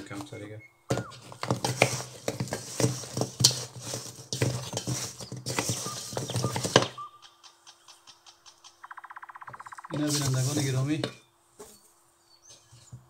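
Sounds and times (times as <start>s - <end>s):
spoon stirring in metal bowl: 1.1s - 6.8s.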